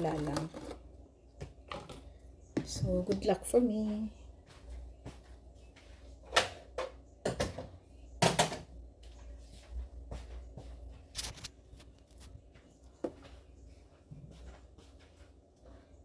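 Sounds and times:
objects being handled: 11.0s - 12.5s.

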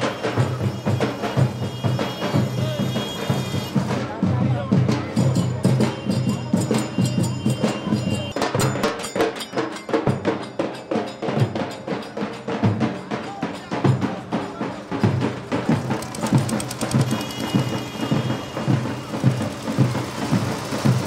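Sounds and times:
procession band drums: 0.0s - 9.0s, 11.0s - 21.0s.

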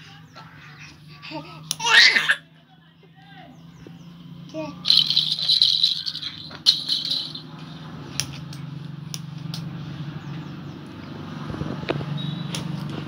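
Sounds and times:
high rattling: 4.8s - 7.8s.

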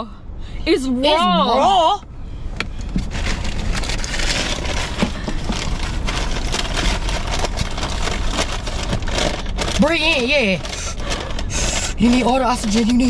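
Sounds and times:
paper bag crinkling: 3.1s - 13.0s.

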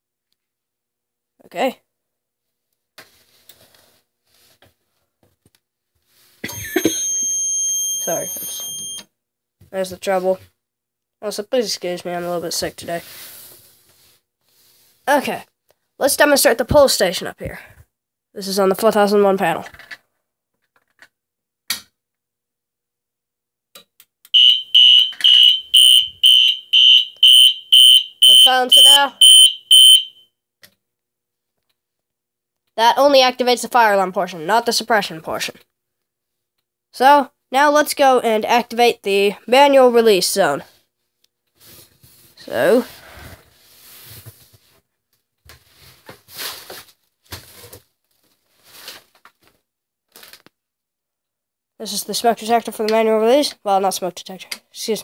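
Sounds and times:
fire alarm horns pulsing: 6.8s - 9.0s, 24.4s - 30.2s.

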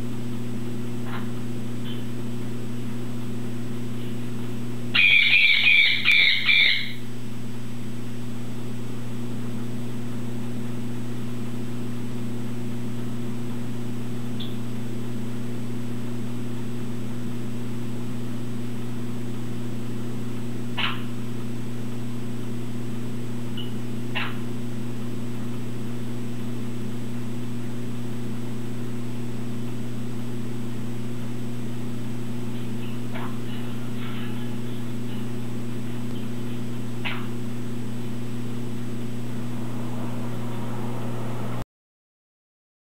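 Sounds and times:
steady low hum: 0.0s - 41.6s
parrot squawking: 4.9s - 7.0s, 20.8s - 21.0s.

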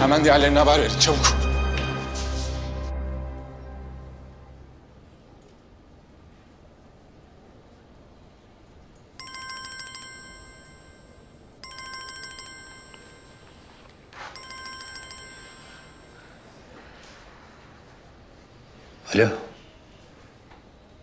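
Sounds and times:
rustling noise: 1.2s - 3.0s
mobile phone ringtone: 9.2s - 16.6s.

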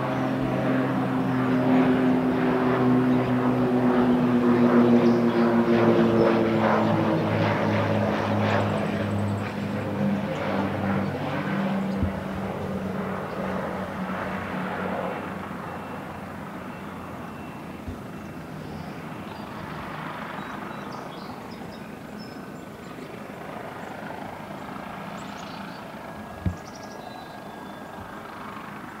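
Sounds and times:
distant propeller plane engines droning: 0.0s - 29.0s
dull thump: 12.0s - 12.3s, 26.4s - 26.7s.

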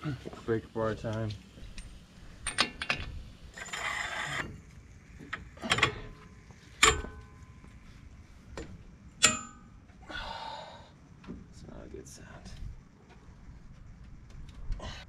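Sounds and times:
metal scraping rattle: 1.7s - 7.4s
sharp metal clanks: 1.8s - 4.6s, 5.3s - 7.6s, 8.6s - 9.9s.

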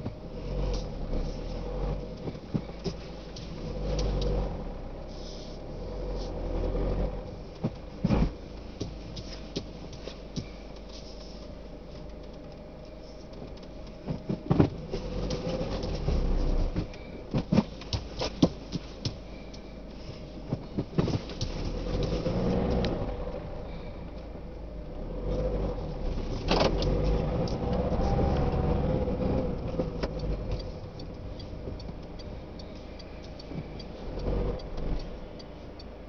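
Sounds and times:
car engine and road rumble: 0.0s - 36.0s
knocks and clicks in car cabin: 7.4s - 10.8s, 13.3s - 19.3s, 20.5s - 22.3s.

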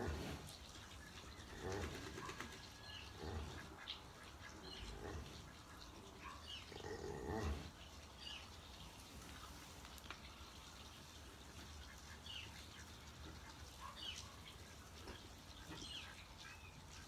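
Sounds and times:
cow grunting: 0.0s - 0.4s, 6.7s - 7.7s.

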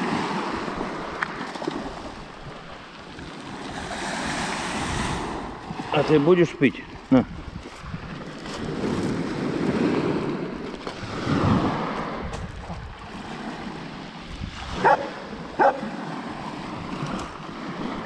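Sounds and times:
waves on pebble beach: 0.0s - 18.0s
dog barks: 14.8s - 15.9s.

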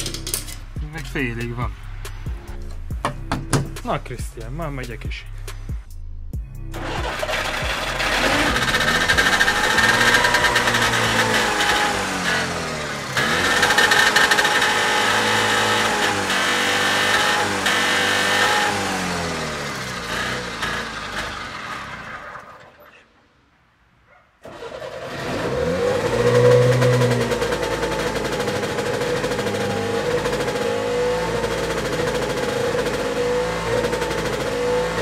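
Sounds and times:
two-stroke engine revving: 6.7s - 22.7s, 24.5s - 35.0s.

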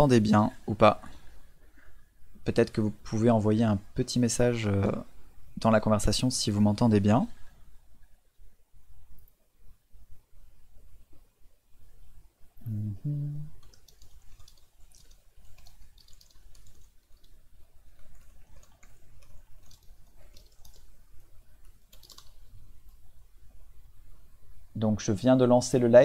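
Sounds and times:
man's voice murmuring: 12.6s - 13.6s
keyboard and mouse clicks: 13.6s - 21.0s, 21.6s - 23.0s.

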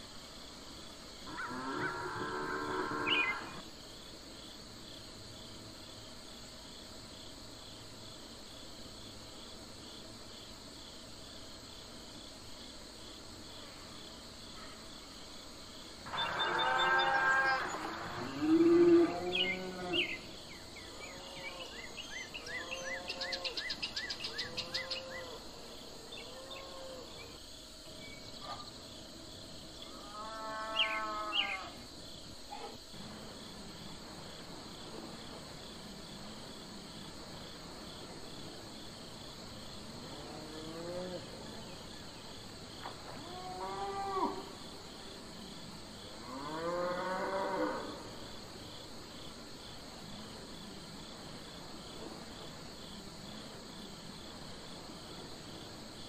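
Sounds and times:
crickets chirping: 0.0s - 56.0s
cattle mooing: 1.4s - 3.5s, 16.1s - 20.1s.

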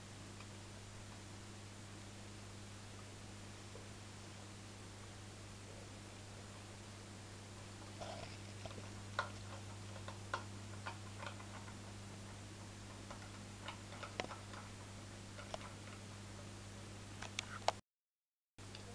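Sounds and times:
faint electrical hum: 0.0s - 17.8s, 18.6s - 18.9s.

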